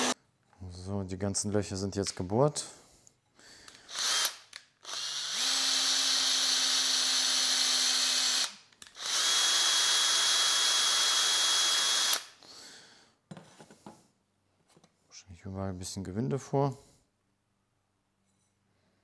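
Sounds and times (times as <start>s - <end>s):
electric drill whining: 3.8s - 12.3s.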